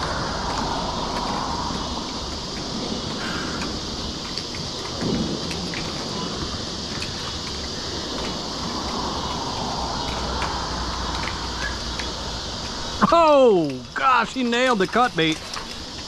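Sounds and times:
faint ticks: 0:00.0 - 0:12.8
wind rumble on microphone: 0:00.0 - 0:13.1
water hissing through spillway: 0:00.0 - 0:16.0.

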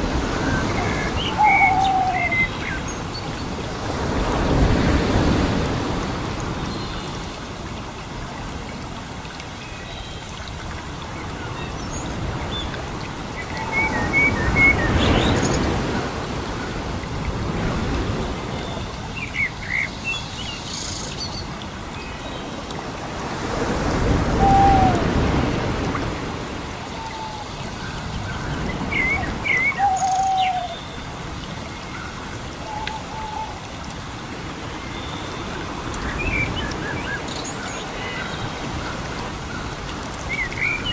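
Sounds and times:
birds chirping and whistling: 0:00.8 - 0:02.8, 0:28.9 - 0:30.9.

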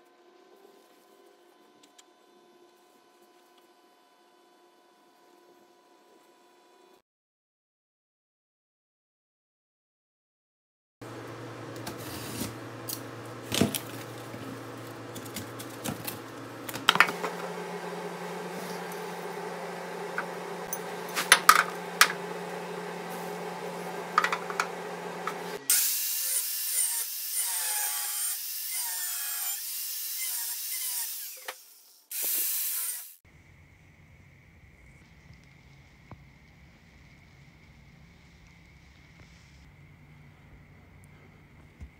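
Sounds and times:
steady low hum: 0:12.5 - 0:25.7
hissing tool: 0:17.0 - 0:33.2
power tool cutting steel: 0:17.0 - 0:33.2.

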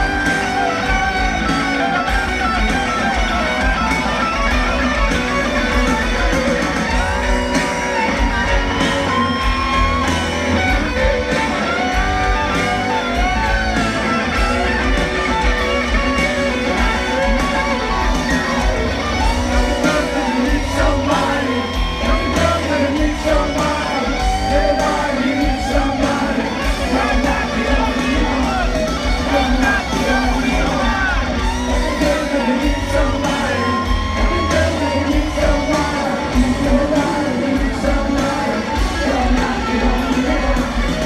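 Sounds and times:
live rock band: 0:00.0 - 0:41.0.

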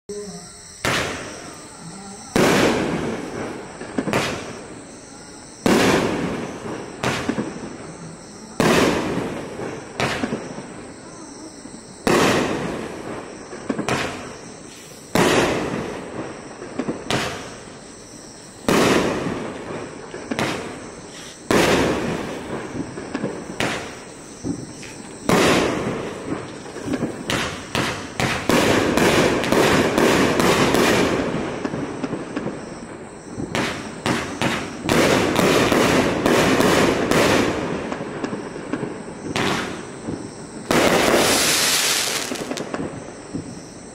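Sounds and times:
dense fireworks crackling: 0:00.7 - 0:43.9
fireworks bangs: 0:00.7 - 0:43.9.

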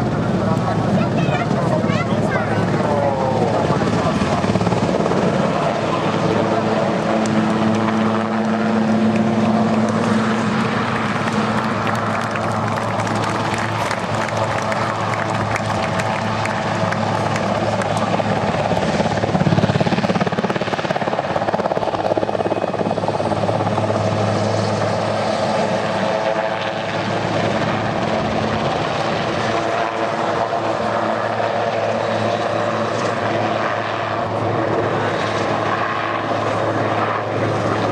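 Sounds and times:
helicopter flying past: 0:00.0 - 0:37.9.

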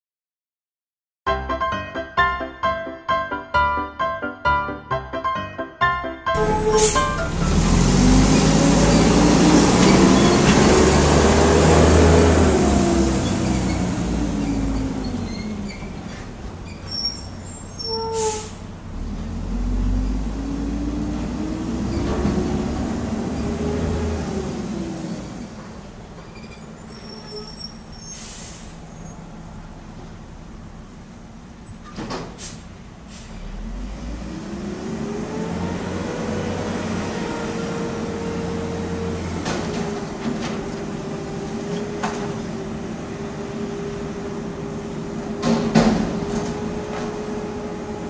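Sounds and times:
brief sharp sound: 0:06.4 - 0:07.8
diesel truck engine revving: 0:06.4 - 0:17.7, 0:18.6 - 0:25.6, 0:32.8 - 0:48.0.

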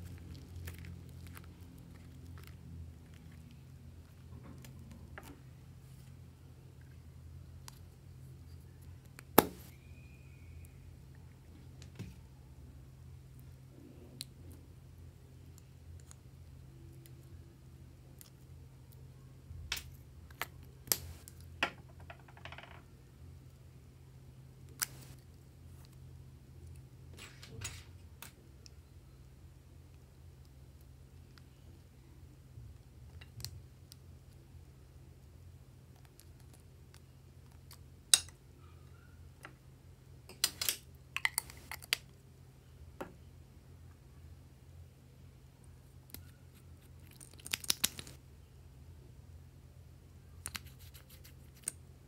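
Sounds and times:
low steady hum: 0:00.0 - 0:52.0.

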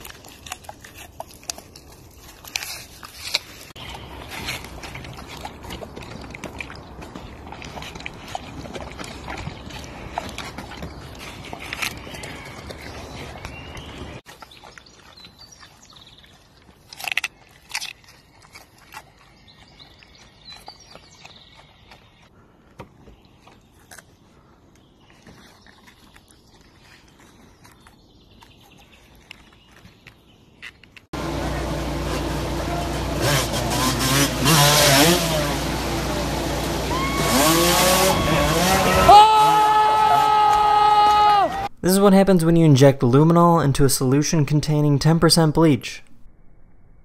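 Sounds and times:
wolf crunching carrot: 0:00.0 - 0:39.6
voices shouting: 0:31.2 - 0:33.8, 0:35.5 - 0:41.7
dirt bike engine revving: 0:31.2 - 0:41.7.

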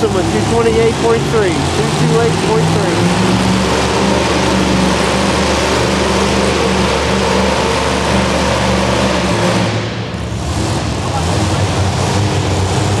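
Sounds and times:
supercharged engine idling: 0:00.0 - 0:13.0.

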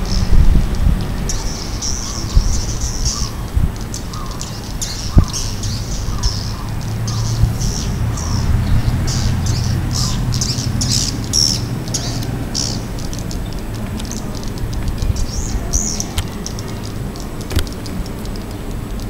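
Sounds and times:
birds chirping: 0:00.0 - 0:19.0
steady low rumble: 0:00.0 - 0:19.0.

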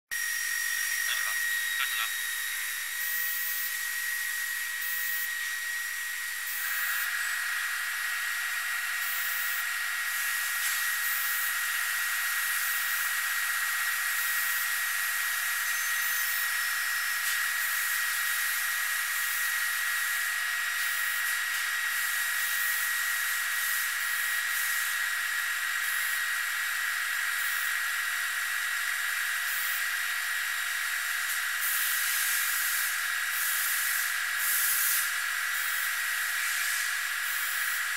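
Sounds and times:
induction heater high-pitched whine: 0:00.1 - 0:37.9
hiss: 0:31.2 - 0:37.9.

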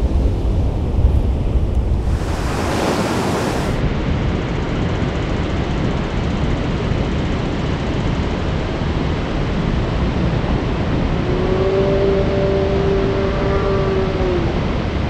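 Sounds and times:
ocean waves breaking: 0:00.0 - 0:03.8.

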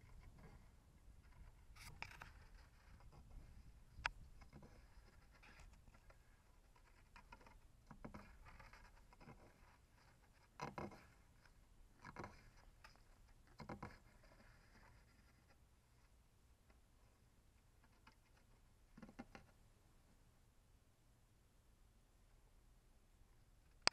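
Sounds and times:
tortoise claws scratching wood: 0:00.0 - 0:15.6.

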